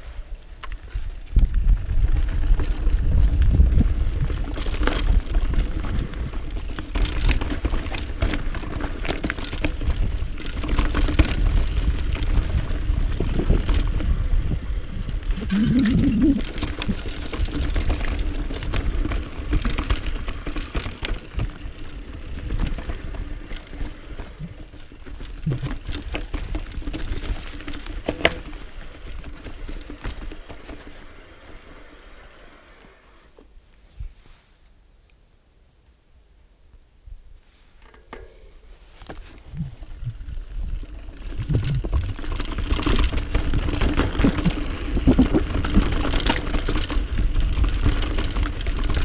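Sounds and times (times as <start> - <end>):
tyres on dirt and stones: 0.5 - 32.6, 37.7 - 49.0
bike frame and chain rattling: 0.7 - 31.8, 37.8 - 49.0
wind buffeting microphone: 1.0 - 7.4, 9.7 - 20.4, 25.4 - 27.4, 39.5 - 49.0.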